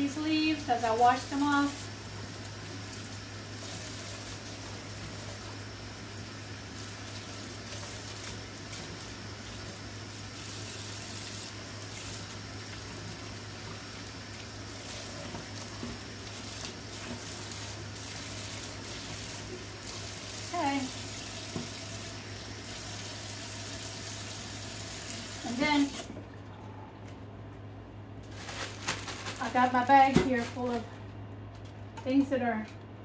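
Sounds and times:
water splashing over lettuce leaves: 6.6 - 24.0
faucet running into metal sink: 13.6 - 26.1.

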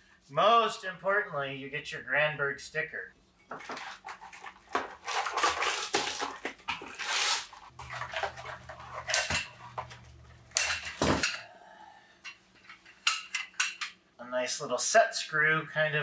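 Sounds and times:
cardboard rustling and scraping: 3.5 - 10.2.

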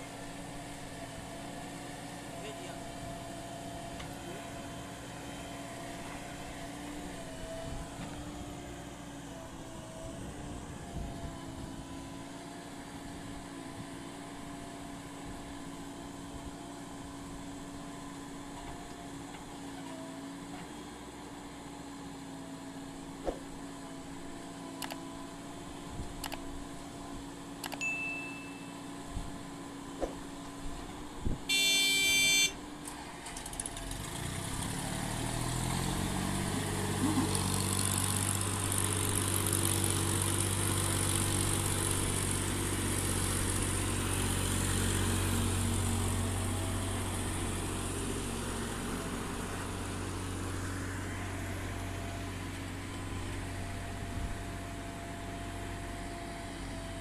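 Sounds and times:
diesel engine running: 0.0 - 57.0
loud horn tone: 31.5 - 32.6.

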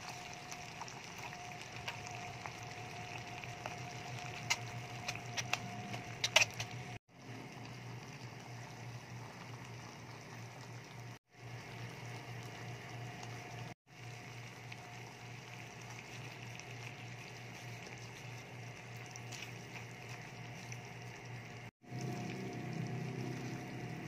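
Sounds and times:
sauce bubbling in a frying pan: 0.0 - 24.0
sharp clicks and pops: 3.7 - 7.0.

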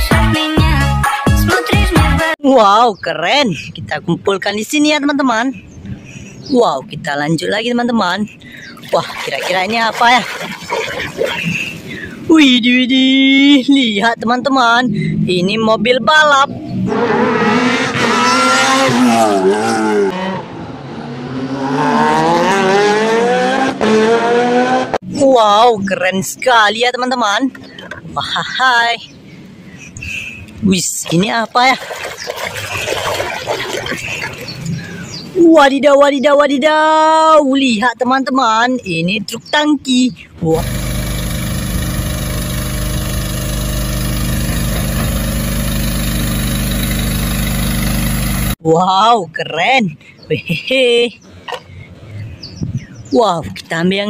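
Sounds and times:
race car engine revving: 16.6 - 25.0, 40.6 - 48.6
truck diesel engine running: 40.5 - 48.6.

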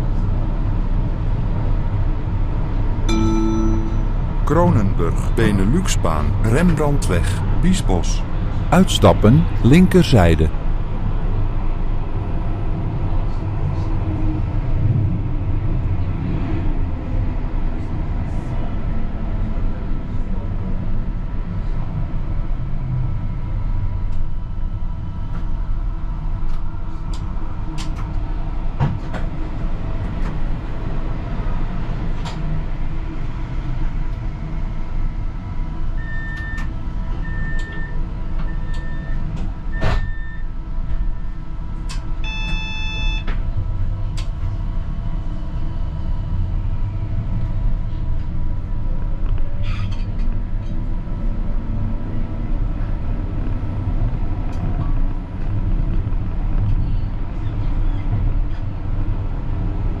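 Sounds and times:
standing tram hum: 0.0 - 60.0
tram rumble and motor whine: 0.0 - 60.0
short beeps: 3.1 - 4.4, 42.2 - 43.3.

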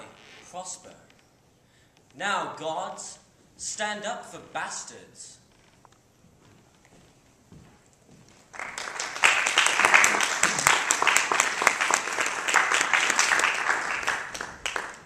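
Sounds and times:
audience applauding: 8.5 - 15.0.

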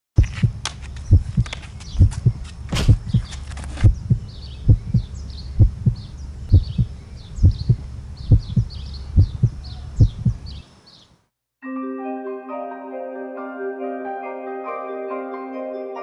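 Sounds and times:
heartbeat thuds: 0.2 - 10.6
birds chirping faintly: 0.2 - 11.3.

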